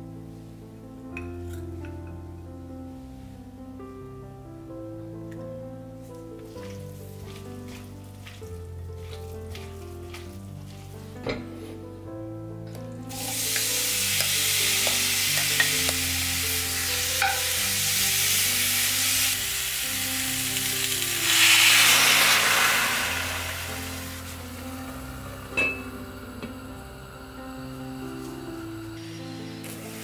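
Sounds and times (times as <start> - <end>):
food sizzling in a pan: 13.1 - 30.0
liquid hitting hot pan: 21.0 - 24.6.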